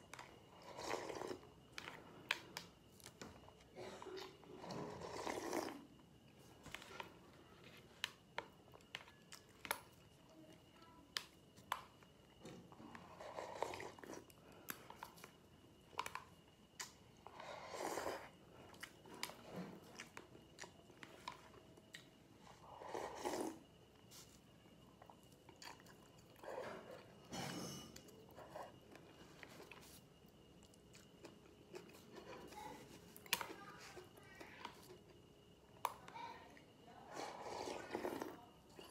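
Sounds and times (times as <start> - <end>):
chewing and slurping: 0.0 - 5.9, 12.7 - 15.4, 16.0 - 24.2, 24.9 - 27.3, 37.1 - 38.9
faint high whine: 0.0 - 38.9.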